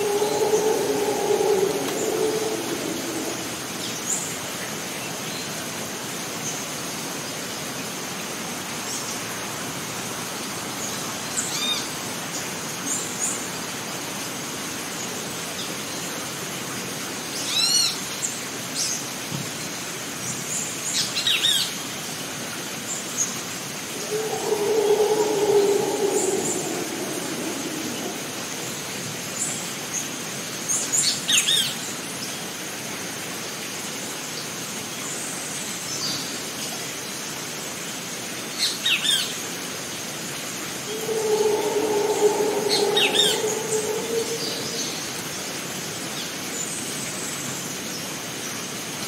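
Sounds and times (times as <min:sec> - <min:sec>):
steady hiss: 0:00.0 - 0:04.5, 0:23.9 - 0:29.3
high-pitched insect drone: 0:24.0 - 0:28.9, 0:40.8 - 0:45.3
bird chirps: 0:40.8 - 0:45.2
low droning sound: 0:40.8 - 0:45.4.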